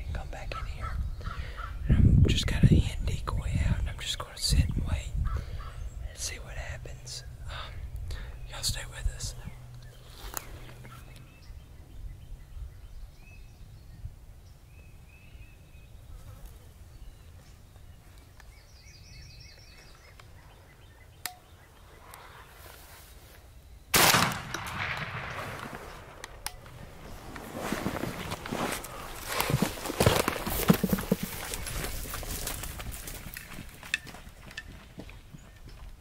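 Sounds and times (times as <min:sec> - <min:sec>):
shotgun blast: 0:23.9 - 0:26.2.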